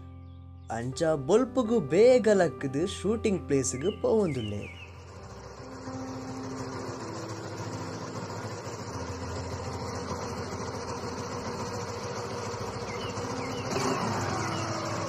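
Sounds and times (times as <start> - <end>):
scooter engine running: 3.0 - 15.0.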